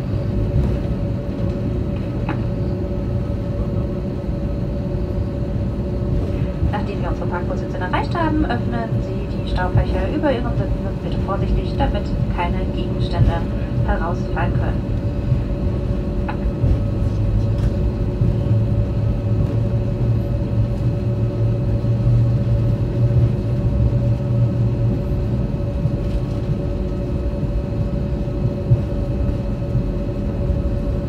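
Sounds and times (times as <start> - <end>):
aircraft cabin rumble: 0.0 - 31.0
jet engine whine: 0.0 - 31.0.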